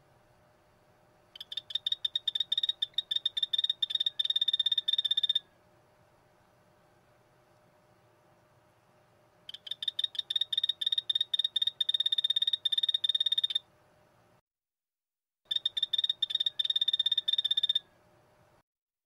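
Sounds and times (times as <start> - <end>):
frog high-pitched chirps: 1.4 - 5.5, 9.5 - 13.7, 15.5 - 17.9.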